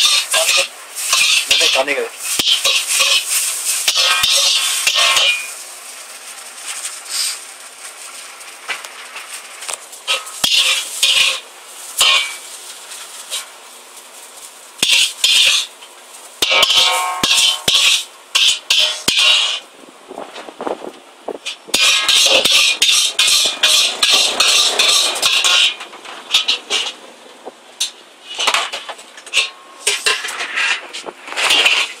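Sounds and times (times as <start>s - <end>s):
metal ladle scraping a wok: 0.0s - 5.6s, 10.0s - 12.5s, 14.8s - 15.7s, 16.4s - 19.6s, 21.5s - 27.0s, 27.8s - 32.0s
steady hiss: 0.0s - 32.0s.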